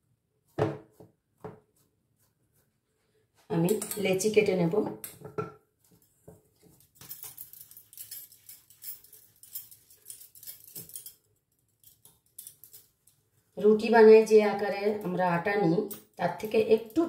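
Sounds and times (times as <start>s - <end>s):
hands patting dough: 0.4s - 2.7s.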